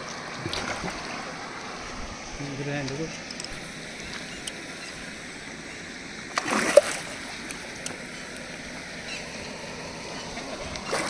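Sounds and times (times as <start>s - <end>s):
fish splashing at water surface: 6.3s - 8.1s.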